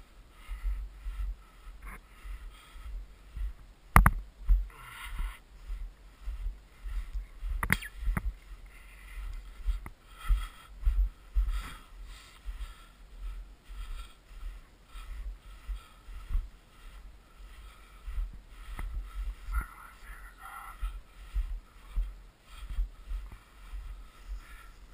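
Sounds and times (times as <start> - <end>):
wind rumble on microphone: 0.0 - 24.9
footsteps in snow: 1.0 - 24.9
sharp click: 3.9 - 4.2, 7.6 - 8.3.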